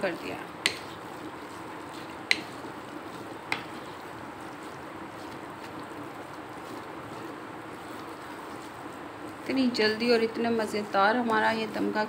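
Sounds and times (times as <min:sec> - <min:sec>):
wooden spatula scraping wok: 0:00.0 - 0:12.0
spatula knocking against pan: 0:02.3 - 0:02.6, 0:03.5 - 0:03.8.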